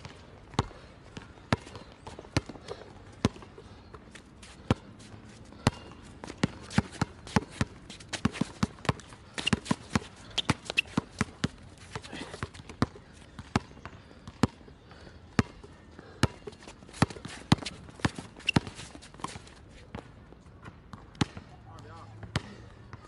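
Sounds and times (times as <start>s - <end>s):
basketball bouncing: 0.0s - 3.5s, 5.6s - 11.6s
shoe squeaks: 9.2s - 12.3s, 16.9s - 19.6s.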